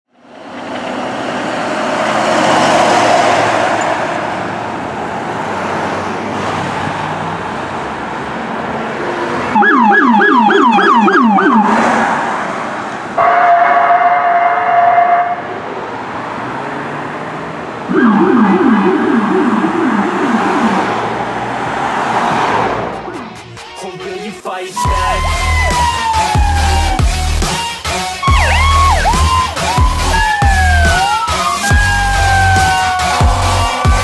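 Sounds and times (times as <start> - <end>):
traffic noise: 0.1 - 34.0
wailing siren: 9.5 - 11.8, 13.2 - 15.5, 17.9 - 21.4, 24.8 - 27.6, 28.2 - 34.0
fast yelp siren: 9.6 - 11.8, 13.2 - 15.4, 17.9 - 21.1, 24.8 - 27.4, 28.2 - 34.0
electronic horn blast: 17.9 - 20.9.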